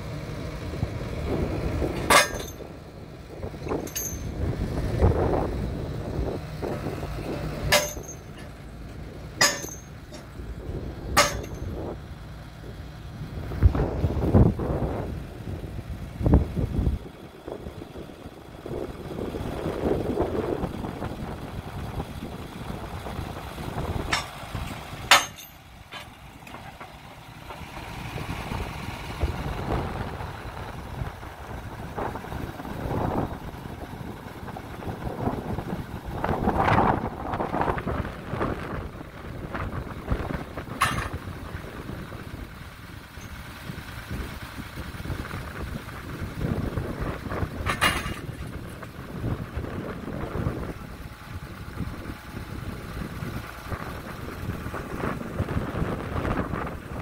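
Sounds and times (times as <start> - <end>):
diesel engine running: 0.0 - 57.0
wind on microphone: 45.0 - 57.0.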